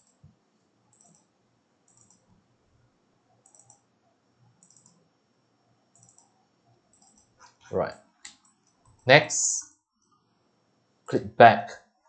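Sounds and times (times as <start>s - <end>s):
faint computer mouse clicks: 0.9s - 1.3s, 1.9s - 2.3s, 3.4s - 3.8s, 4.6s - 5.0s, 5.9s - 6.3s, 6.9s - 7.6s, 8.2s - 9.0s.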